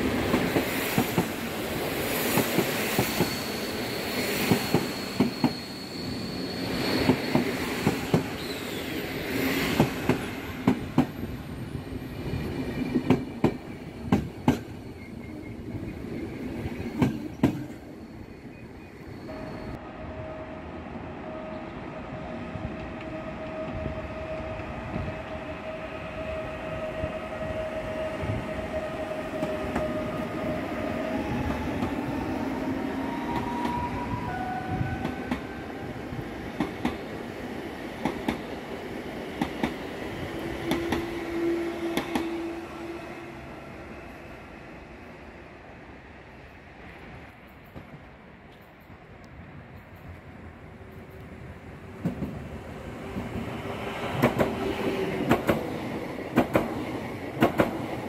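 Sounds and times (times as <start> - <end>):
electric train rumble: 0.0 - 48.4
train wheels clacking on rail joints: 54.1 - 58.0.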